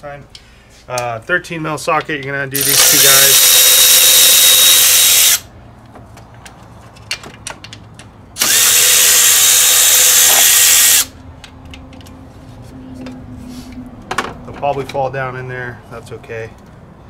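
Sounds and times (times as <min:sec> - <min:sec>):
cordless electric ratchet spinning: 0:02.6 - 0:05.5, 0:08.4 - 0:11.1.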